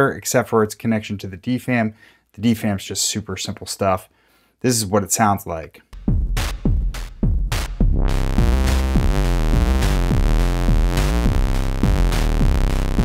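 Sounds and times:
synth drum hits: 0:06.0 - 0:13.0
stepping synth bass line: 0:07.2 - 0:13.0.

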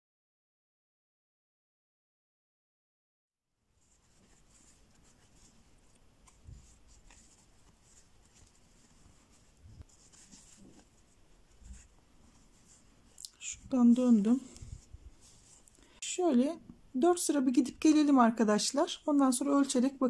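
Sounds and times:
crochet hook scratching yarn: 0:03.8 - 0:15.6.

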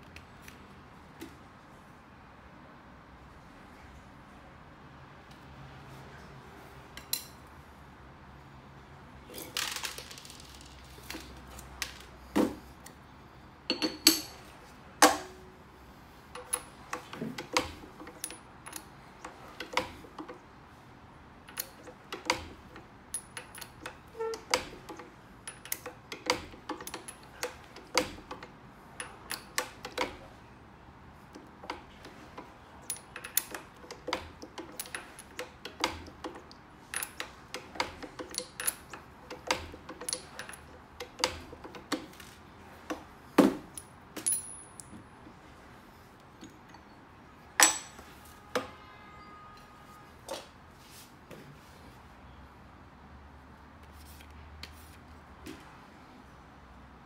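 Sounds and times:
steel parts clinking: 0:13.7 - 0:14.5, 0:16.3 - 0:20.4, 0:21.4 - 0:30.3, 0:31.3 - 0:42.1, 0:43.6 - 0:44.9, 0:46.4 - 0:48.1.

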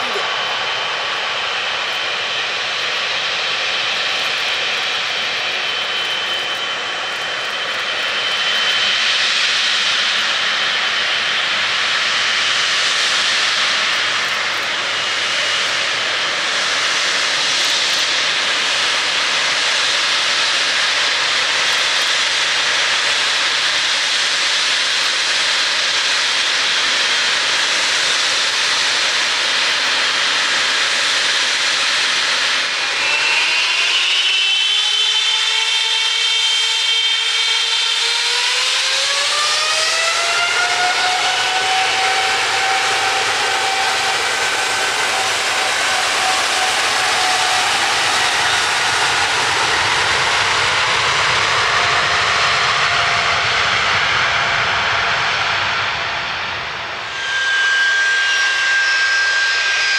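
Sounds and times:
jet engines running loudly: 0:00.0 - 0:59.9
thin high whine: 0:54.6 - 0:59.9.

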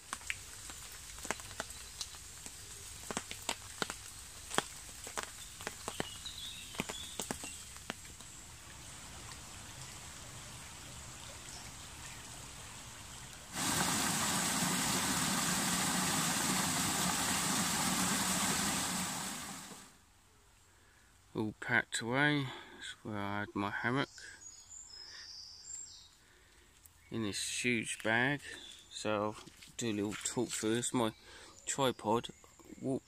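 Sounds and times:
water dripping: 0:00.0 - 0:19.9
stream rushing past a log: 0:08.6 - 0:20.0.

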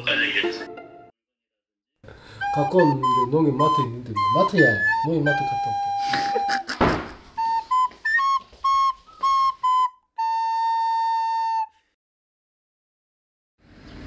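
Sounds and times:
playful flute-like melody: 0:02.2 - 0:06.8, 0:07.4 - 0:12.0.

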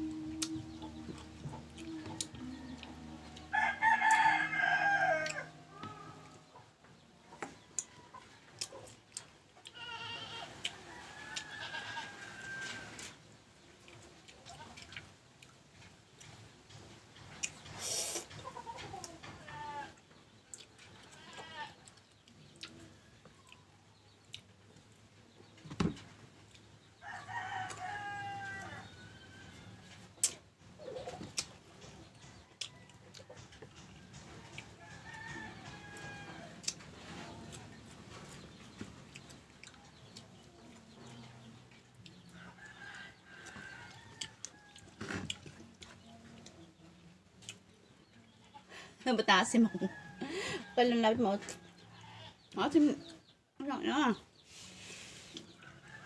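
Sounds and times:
chickens clucking: 0:00.0 - 0:09.8, 0:10.5 - 0:21.2, 0:21.8 - 0:53.3
rooster crowing: 0:01.9 - 0:06.5, 0:10.8 - 0:13.1, 0:27.0 - 0:29.8, 0:34.8 - 0:36.7.

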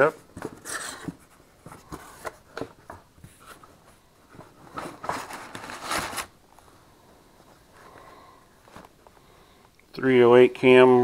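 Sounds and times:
cardboard and paper rustling: 0:00.0 - 0:06.4.

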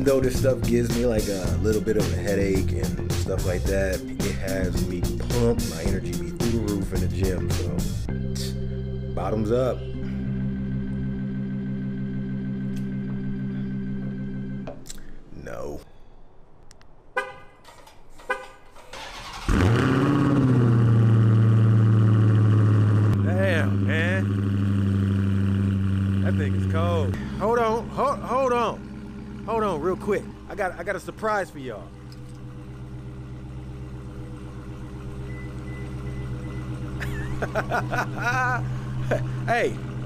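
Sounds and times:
car engine starting and idling: 0:00.0 - 0:15.1, 0:17.6 - 0:40.0
car horn chirps: 0:17.2 - 0:18.8.

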